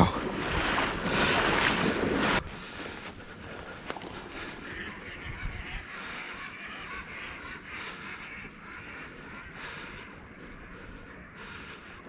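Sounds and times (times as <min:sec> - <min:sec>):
moving water: 0:00.0 - 0:12.0
geese honking: 0:02.7 - 0:12.0.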